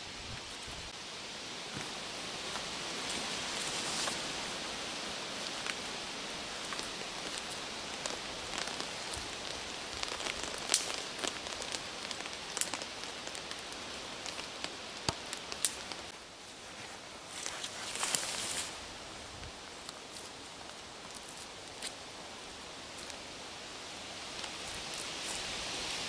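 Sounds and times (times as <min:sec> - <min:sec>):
steady outdoor hiss: 0:00.0 - 0:26.0
twigs clicking and knocking: 0:05.4 - 0:16.1, 0:19.7 - 0:22.0.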